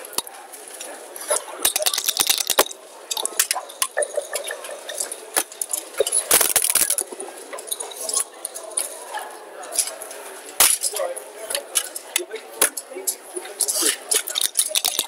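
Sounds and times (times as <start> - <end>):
dice rattling in a cup: 1.3 - 5.0, 13.6 - 15.0
checkers clacking on board: 1.3 - 8.5, 12.6 - 15.0.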